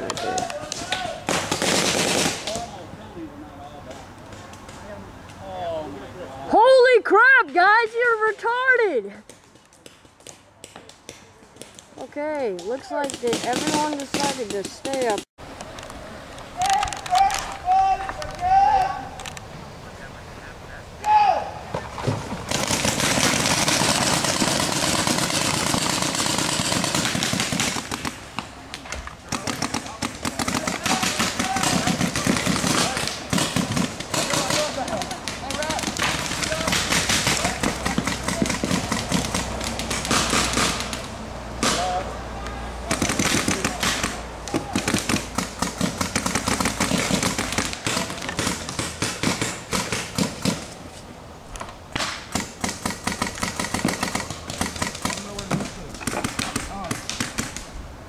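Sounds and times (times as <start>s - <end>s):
paintball markers firing rapidly: 12.6s - 15.2s, 22.5s - 28.5s, 29.3s - 41.8s, 42.9s - 50.8s, 52.0s - 57.7s.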